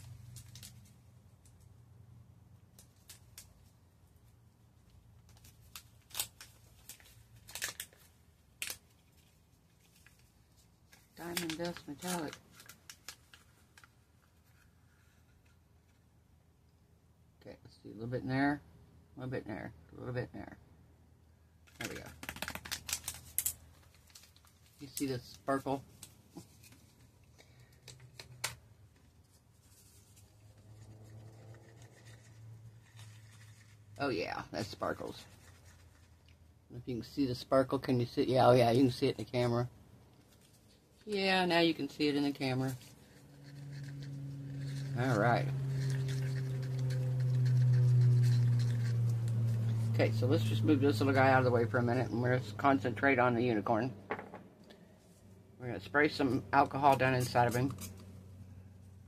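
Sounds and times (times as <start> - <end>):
stick stirring resin in cup: 42.3 - 50.3.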